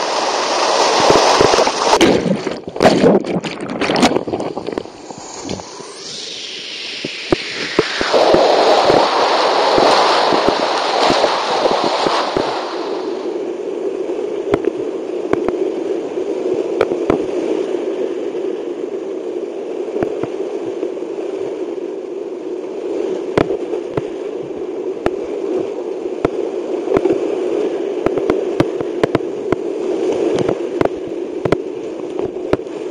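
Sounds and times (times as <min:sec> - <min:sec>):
water splash: 0:00.0 - 0:13.3
whitewater rushing: 0:00.0 - 0:13.4
sharp clicks and crackles: 0:28.1 - 0:29.6.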